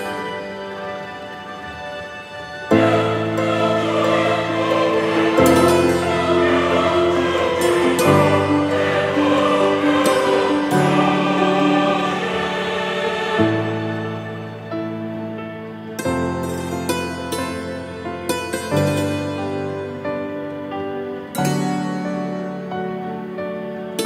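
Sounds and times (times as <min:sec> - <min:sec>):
choir-like intro music: 0:00.0 - 0:15.7.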